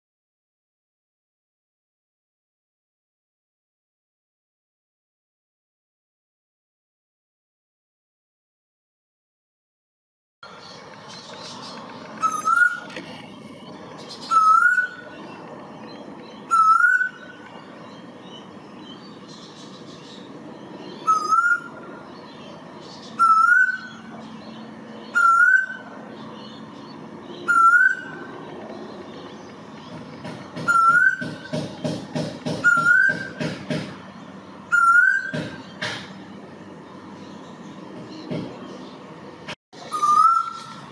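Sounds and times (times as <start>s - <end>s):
bird rising whistled calls: 12.2s - 12.9s, 14.2s - 15.0s, 16.5s - 17.3s, 21.0s - 21.8s, 23.2s - 24.0s, 25.1s - 25.8s, 27.4s - 28.2s, 30.6s - 31.3s, 32.6s - 33.4s, 34.7s - 35.3s, 39.9s - 40.8s.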